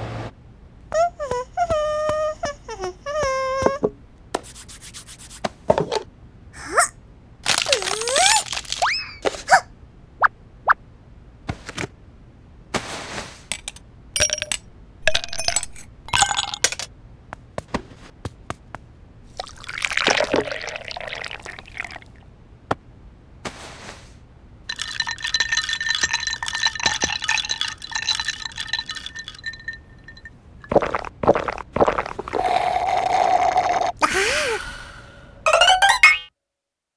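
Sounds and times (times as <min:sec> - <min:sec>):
ice cubes clinking into glass: 0:14.2 - 0:16.9, 0:24.7 - 0:31.0
milk pouring: 0:19.4 - 0:22.2, 0:24.7 - 0:32.6
slurp through a straw: 0:30.7 - 0:34.0.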